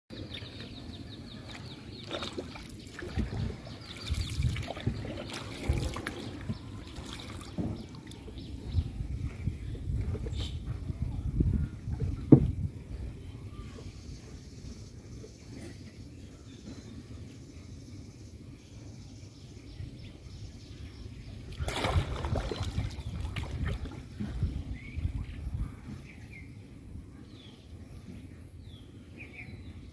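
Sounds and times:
water lapping around boat: 0:00.2 - 0:11.1, 0:21.3 - 0:26.1
low thumps: 0:12.0 - 0:12.9.

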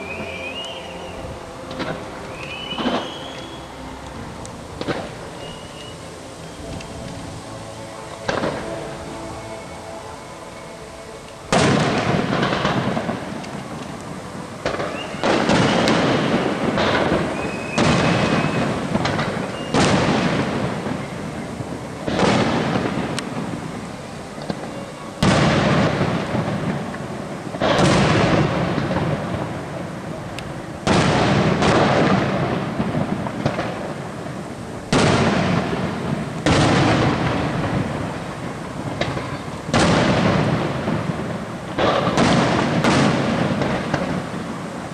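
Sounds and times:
firework shells bursting with echo: 0:11.5 - 0:44.9.

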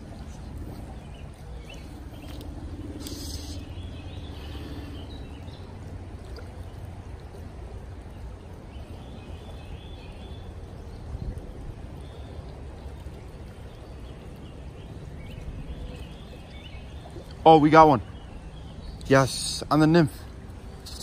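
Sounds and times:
creek water rippling: 0:00.0 - 0:21.0
faint bird chirps: 0:01.6 - 0:05.7.

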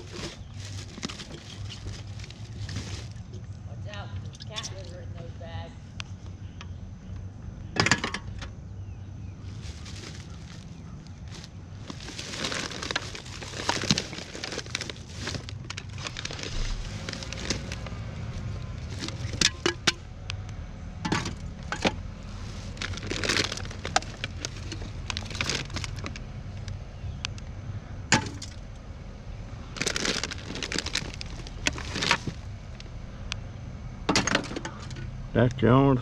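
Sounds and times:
plastic bag crinkling: 0:00.0 - 0:03.4, 0:09.4 - 0:19.9, 0:21.2 - 0:26.7, 0:29.7 - 0:32.8.

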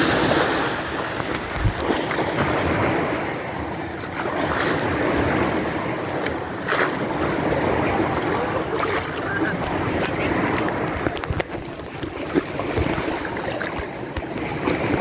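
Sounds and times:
water churning and sloshing: 0:00.0 - 0:15.0.

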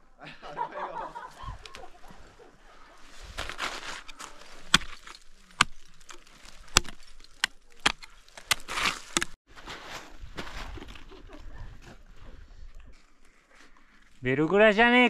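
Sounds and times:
ice tools scraping rock: 0:03.1 - 0:10.0
ice tools striking ice: 0:03.4 - 0:09.4.

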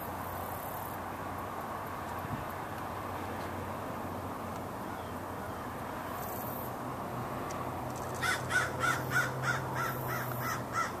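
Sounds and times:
bird harsh calls: 0:08.2 - 0:11.0.

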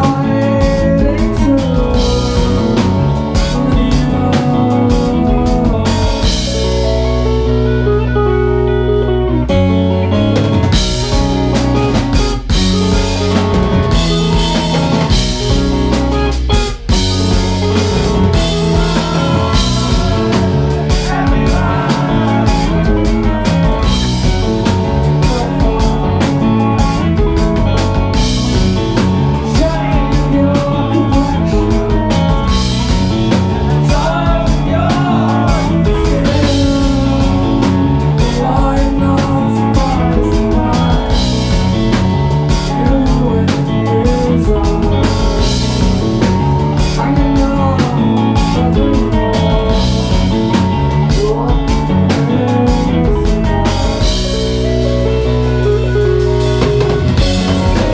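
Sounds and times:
man singing: 0:00.0 - 0:06.9, 0:17.6 - 0:54.3, 0:57.2 - 0:57.9
live rock band playing: 0:00.0 - 0:57.9.

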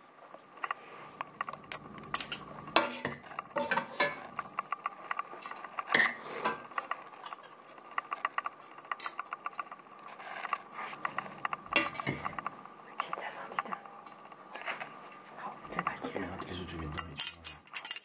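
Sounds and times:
utensils clinking against metal pot: 0:01.2 - 0:07.8, 0:10.8 - 0:12.6, 0:15.6 - 0:18.0.

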